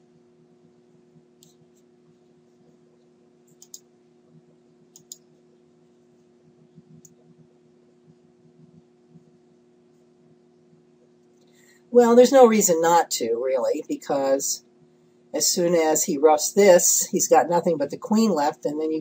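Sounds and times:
faint low hum: 0.0 - 19.0
small sharp clicks: 3.4 - 3.9, 4.9 - 5.3.

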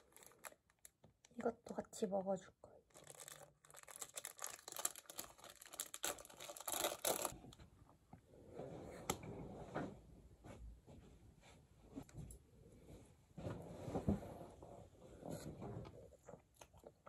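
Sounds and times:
plastic wrapper crinkling and tearing: 0.0 - 1.4, 2.9 - 7.4.

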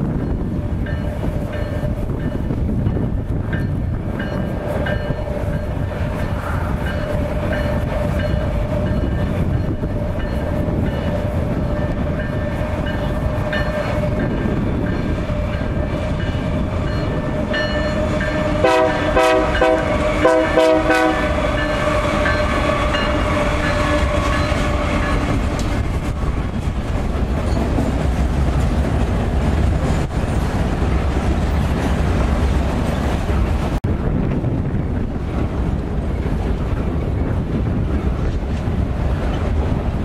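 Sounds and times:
train rumble and wheel clatter: 0.0 - 40.0
train horn short blasts: 18.2 - 25.2.

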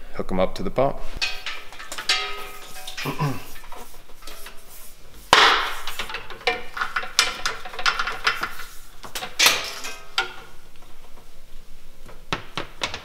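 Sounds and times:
rubber hose scraping and knocking: 1.1 - 13.0.

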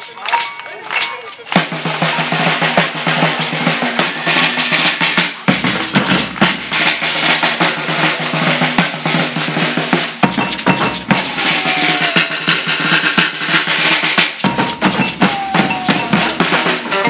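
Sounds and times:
snare drum rolls: 1.0 - 17.0
bass drums: 1.6 - 17.0
beaded gourd shakers: 3.2 - 16.9.

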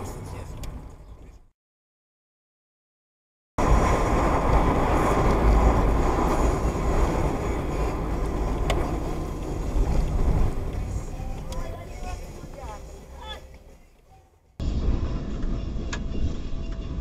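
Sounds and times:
car interior rumble and hiss: 3.6 - 17.0.

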